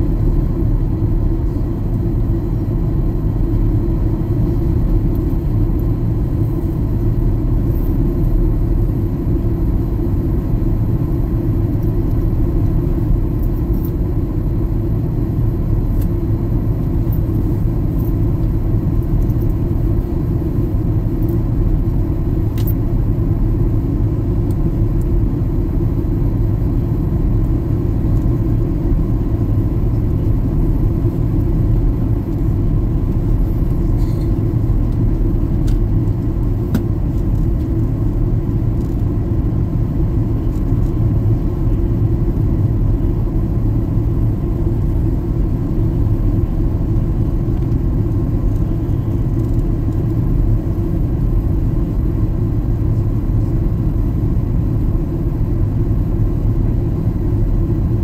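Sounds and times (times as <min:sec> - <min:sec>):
jet airliner cabin rumble: 0:00.0 - 0:58.0.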